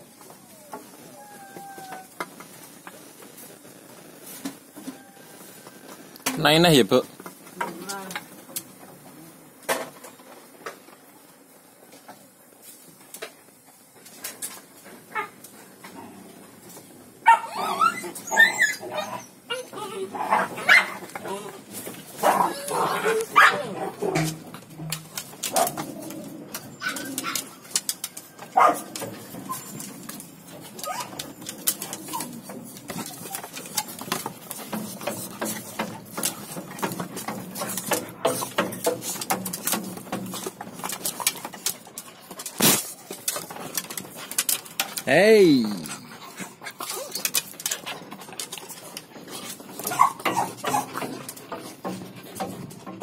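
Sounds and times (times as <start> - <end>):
puppies whining and yipping: 0.2 - 2.2, 17.3 - 21.1, 25.6 - 34.3, 46.4 - 47.4, 49.7 - 51.0
puppy claws clattering on bamboo: 19.7 - 53.0.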